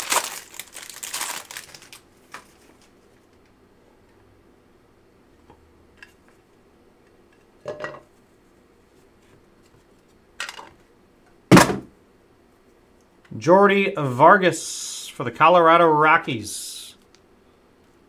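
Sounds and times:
plastic case knocking on table: 11.5s - 11.9s.

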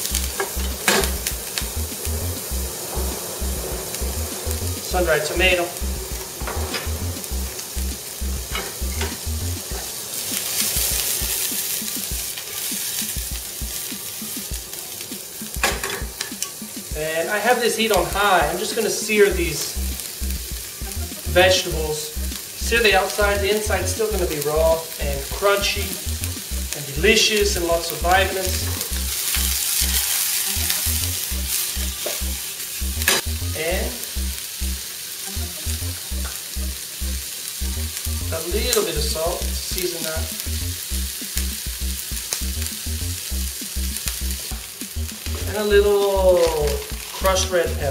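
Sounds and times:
vegetables sizzling in a frying pan: 0.0s - 47.9s.

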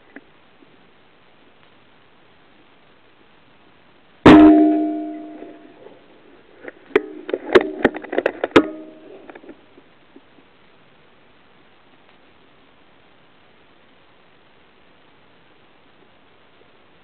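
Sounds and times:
clicks and knocks with ringing tones: 4.3s - 5.8s, 6.9s - 9.5s
metallic ring: 4.3s - 5.8s, 7.0s - 9.2s.

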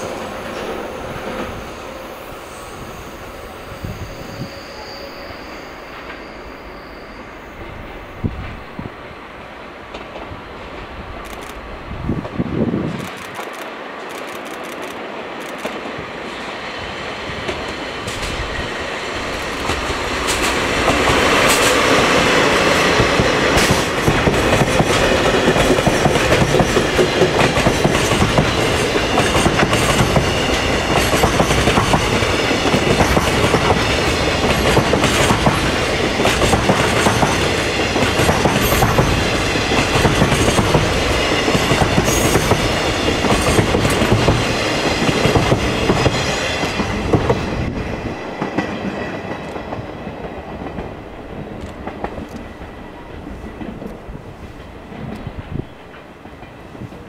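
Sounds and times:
diesel locomotive passing: 0.0s - 57.0s
wheels clacking over rail joints: 17.5s - 57.0s.

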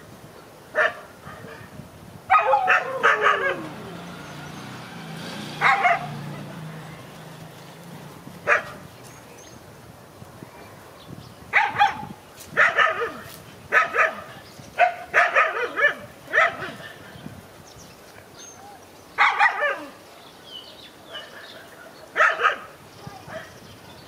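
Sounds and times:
dogs barking: 0.8s - 1.7s, 2.3s - 4.8s, 5.4s - 6.7s, 8.4s - 8.9s, 11.5s - 17.1s, 19.2s - 20.0s, 21.1s - 23.6s.

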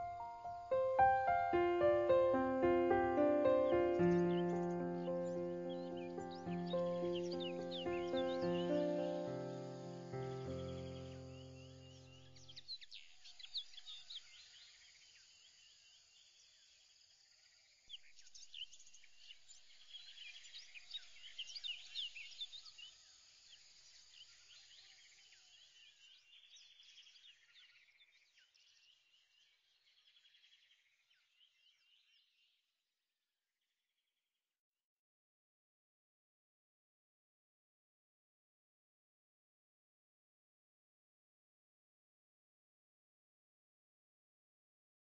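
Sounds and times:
small birds chirping: 0.0s - 16.8s, 17.9s - 32.6s.

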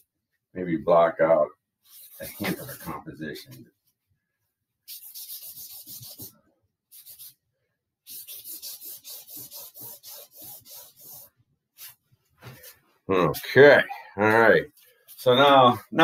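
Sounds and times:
rubbing strokes on canvas: 1.8s - 3.0s, 4.9s - 7.4s, 8.0s - 13.5s.

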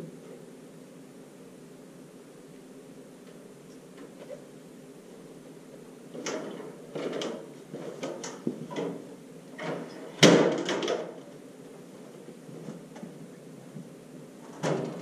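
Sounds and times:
stepladder knocks and rattles: 6.2s - 11.2s, 14.5s - 15.0s.

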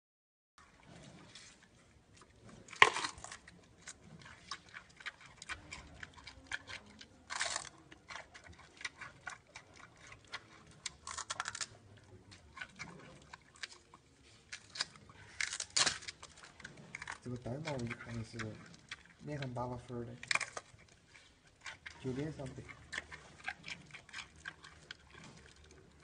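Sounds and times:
panda chewing bamboo: 0.6s - 26.0s
bamboo snapping: 2.8s - 3.4s, 14.6s - 16.3s.

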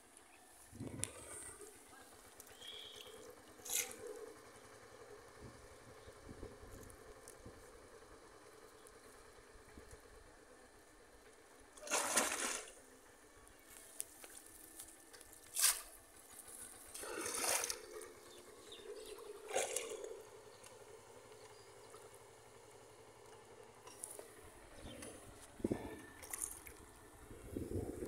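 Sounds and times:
water splashing and sloshing: 11.8s - 12.9s, 16.8s - 18.4s, 19.0s - 20.4s, 25.7s - 27.1s.

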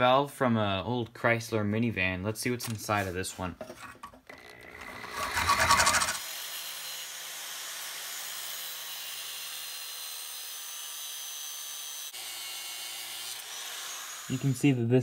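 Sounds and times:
angle grinder cutting metal: 4.3s - 14.9s
loud rattle: 4.8s - 6.2s.

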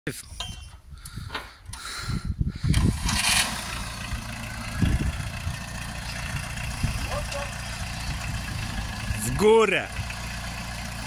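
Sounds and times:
tractor engine starting and idling: 2.6s - 11.0s.

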